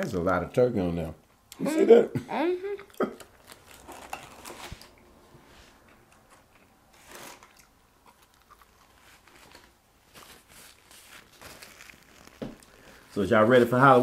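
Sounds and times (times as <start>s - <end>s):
paper food wrappers rustling: 3.3s - 5.0s, 6.9s - 14.0s
chewing: 7.3s - 9.7s.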